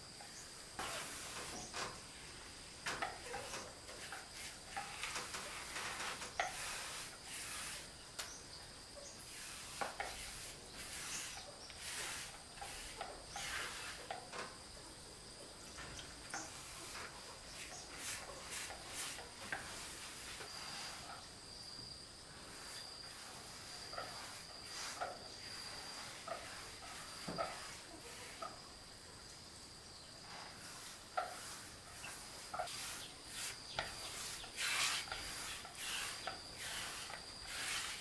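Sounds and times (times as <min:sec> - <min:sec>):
paintbrush swishing on wood: 0:00.8 - 0:01.7, 0:03.3 - 0:08.0, 0:09.2 - 0:14.2, 0:16.4 - 0:21.2, 0:22.4 - 0:28.6, 0:30.3 - 0:38.0.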